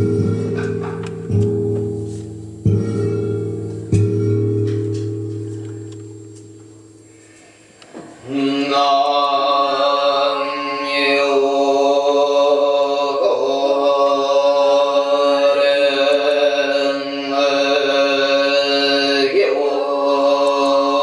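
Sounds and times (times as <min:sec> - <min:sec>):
voices chanting held tones: 0:02.5 - 0:21.0.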